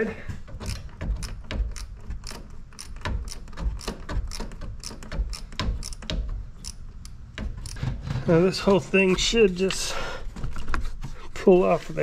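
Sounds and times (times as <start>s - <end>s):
hand tool clicks and knocks: 0.4s - 8.0s.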